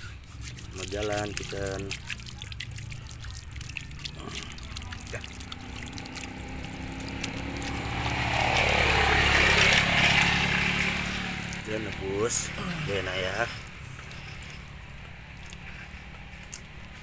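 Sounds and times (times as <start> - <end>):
water splashing onto pavement: 0.0 - 17.0.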